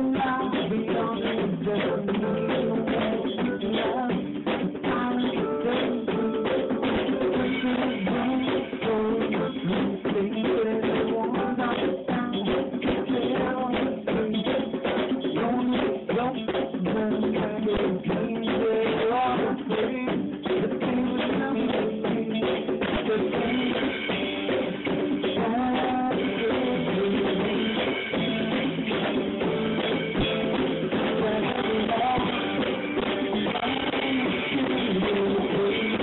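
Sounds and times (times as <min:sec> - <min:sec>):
drum kit: 0:00.0 - 0:36.0
guitar playing: 0:23.4 - 0:36.0.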